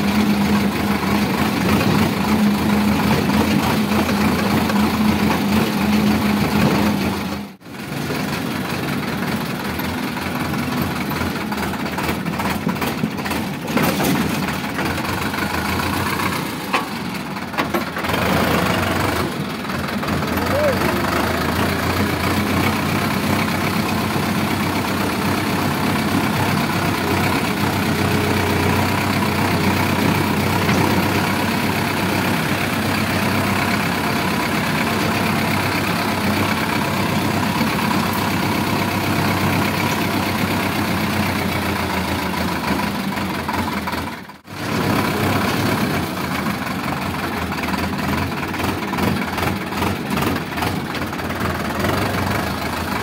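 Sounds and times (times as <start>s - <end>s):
tractor diesel engine running: 0.0s - 53.0s.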